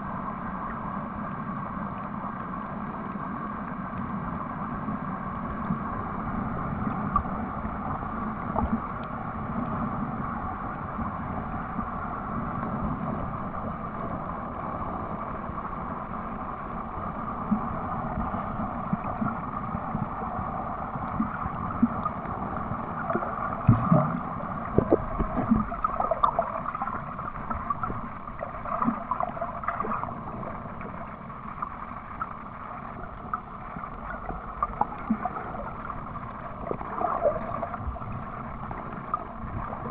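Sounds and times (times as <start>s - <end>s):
muffled underwater rush: 0.0s - 39.9s
water gurgle: 0.0s - 39.9s
small underwater clicks: 7.0s - 9.8s, 18.8s - 39.9s.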